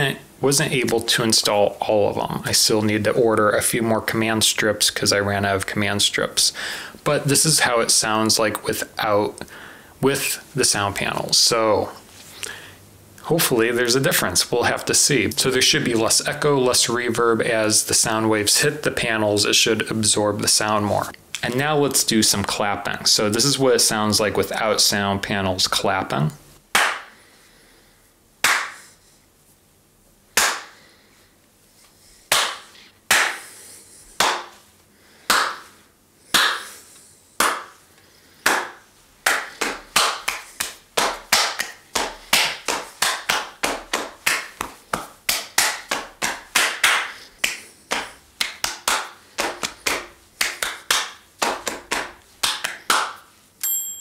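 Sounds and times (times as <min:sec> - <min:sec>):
hands clapping in small room: 0:26.7 - 0:27.2, 0:28.4 - 0:28.9, 0:30.4 - 0:30.8, 0:32.3 - 0:33.6, 0:34.2 - 0:34.7, 0:35.3 - 0:36.8, 0:37.4 - 0:37.8, 0:38.4 - 0:53.4.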